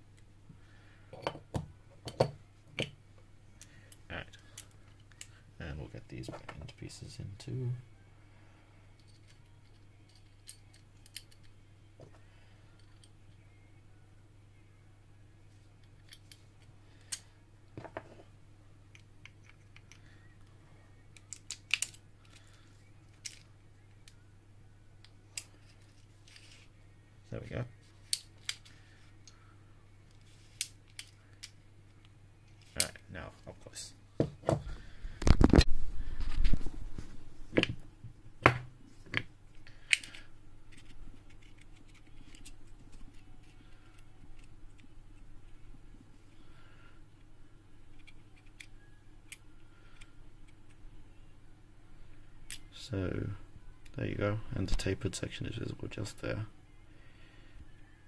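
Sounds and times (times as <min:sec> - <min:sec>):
faint low hum: 0:00.0 - 0:58.0
small metal lock parts clicking: 0:09.0 - 0:11.6, 0:21.2 - 0:22.4.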